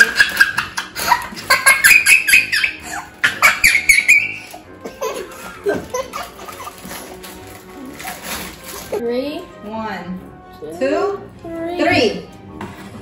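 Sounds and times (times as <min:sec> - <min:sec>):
girl laughing: 0:00.0 - 0:07.1.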